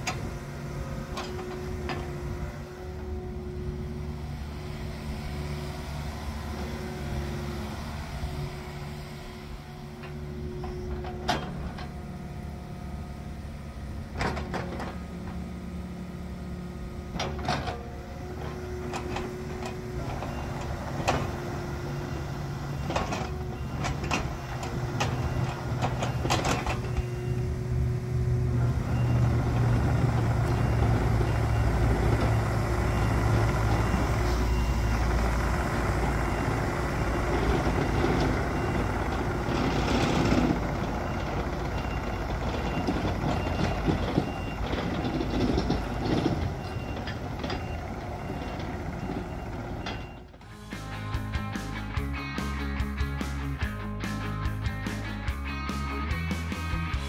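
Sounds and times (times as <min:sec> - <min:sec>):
diesel excavator engine running: 0:00.0 - 0:57.0
travel alarm beeping: 0:25.0 - 0:27.6, 0:28.9 - 0:35.0, 0:40.0 - 0:50.3.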